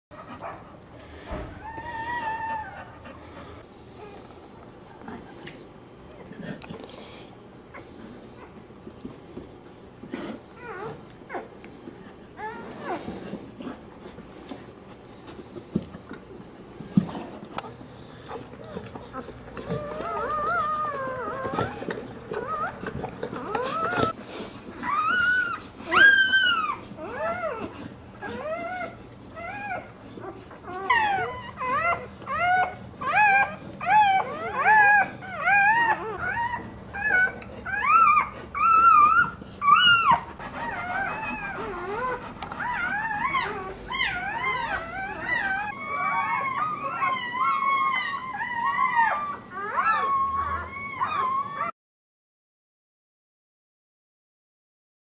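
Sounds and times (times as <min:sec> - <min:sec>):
puppies squealing and whimpering: 0:01.2 - 0:03.7, 0:18.3 - 0:51.7.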